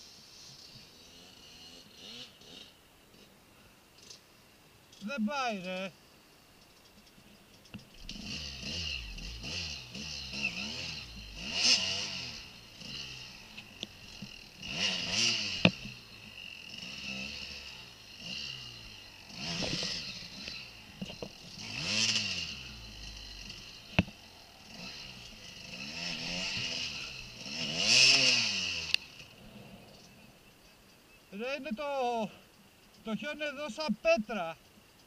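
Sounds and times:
dirt bike engine revving: 0:00.9 - 0:03.3, 0:07.8 - 0:30.1.

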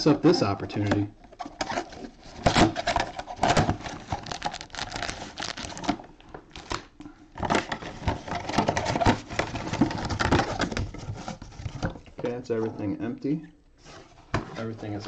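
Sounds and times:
card packs rustling and crinkling: 0:01.4 - 0:12.0.

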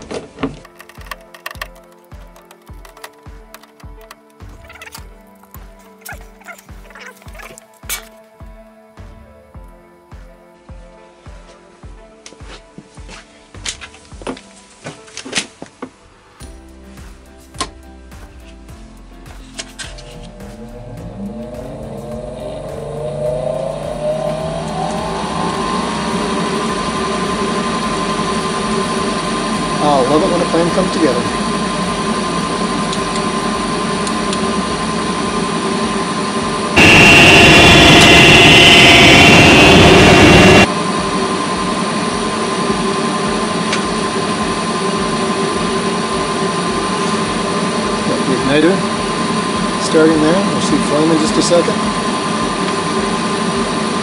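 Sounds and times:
furnace motor whine: 0:00.0 - 0:06.8, 0:16.4 - 0:54.0.

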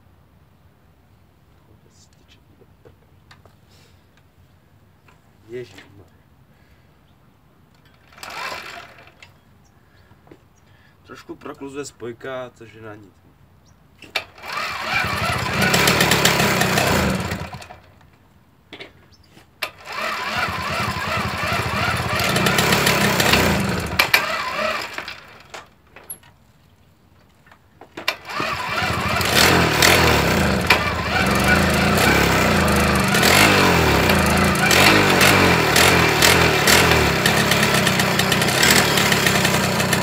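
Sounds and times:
person talking: 0:05.4 - 0:06.2, 0:11.0 - 0:13.2
moped engine starting and running: 0:07.8 - 0:09.4, 0:14.1 - 0:18.0, 0:19.6 - 0:25.8, 0:28.0 - 0:40.0.

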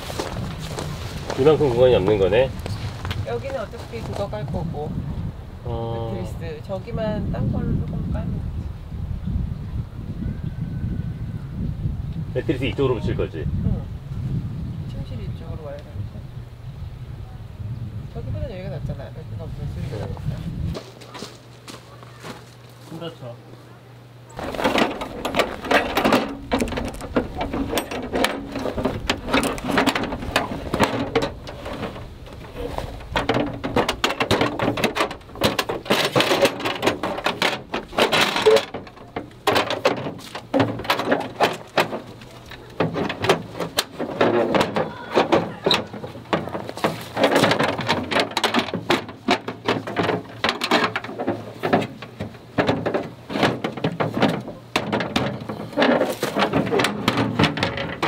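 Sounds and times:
gear rustling and clattering: 0:24.4 - 0:58.0.

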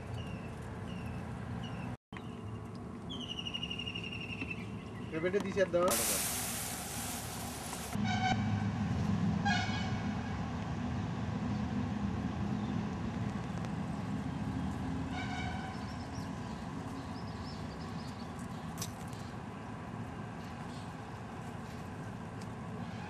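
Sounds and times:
high horn toots: 0:07.9 - 0:08.8, 0:09.4 - 0:10.3.

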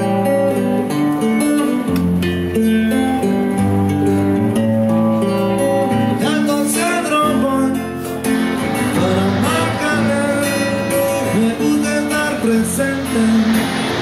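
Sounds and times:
acoustic guitar strummed: 0:00.0 - 0:14.0
person singing: 0:06.2 - 0:14.0.

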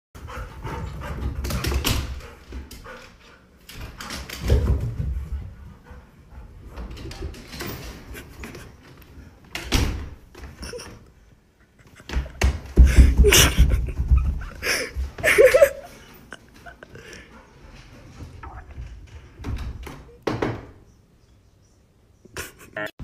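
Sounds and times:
heavy thumps: 0:12.1 - 0:15.7.

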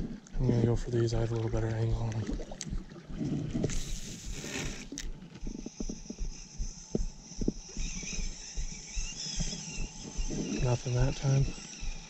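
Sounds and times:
fishing reel whirring: 0:02.0 - 0:12.0
reel click: 0:03.7 - 0:12.0.

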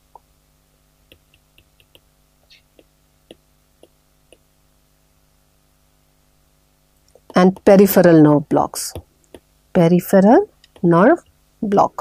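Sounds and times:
low electrical hum: 0:00.0 - 0:12.0
marker tapping on whiteboard: 0:01.1 - 0:02.1, 0:02.7 - 0:04.5, 0:07.1 - 0:07.8, 0:08.9 - 0:09.5, 0:10.7 - 0:11.0.

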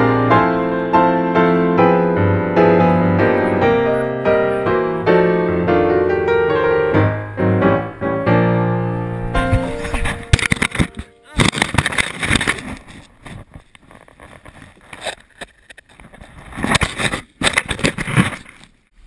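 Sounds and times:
piano music: 0:00.0 - 0:11.3
snow crackling against camera: 0:09.2 - 0:18.9.

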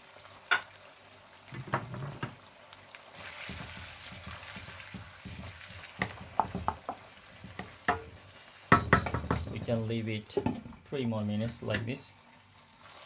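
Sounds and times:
oil sizzling: 0:00.0 - 0:13.0
spatula scraping wok: 0:03.1 - 0:06.3
spatula knocking on wok: 0:03.5 - 0:09.8.

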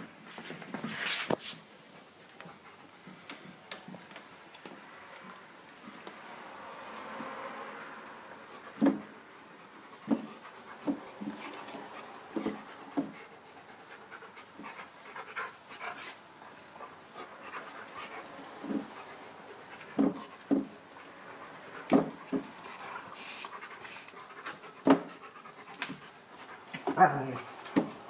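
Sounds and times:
dog panting: 0:07.2 - 0:28.0
dog puffs of breath: 0:22.6 - 0:26.8.

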